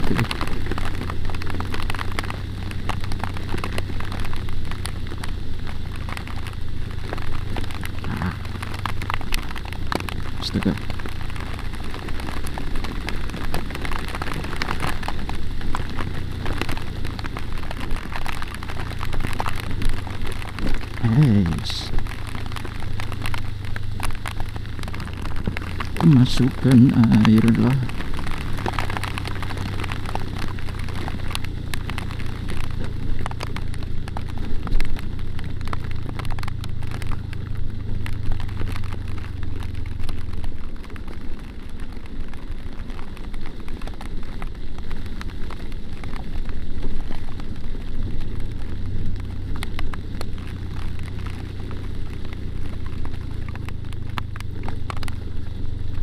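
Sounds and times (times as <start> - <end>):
motorcycle engine running: 0.0 - 40.8
raindrops spattering on camera: 0.0 - 56.0.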